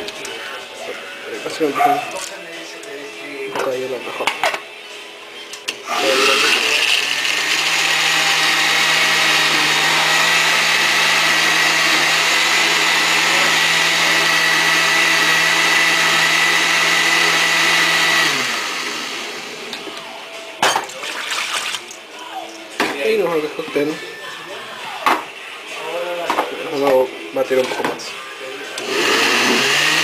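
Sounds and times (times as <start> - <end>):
blender running: 5.9 - 19.8, 28.8 - 30.0.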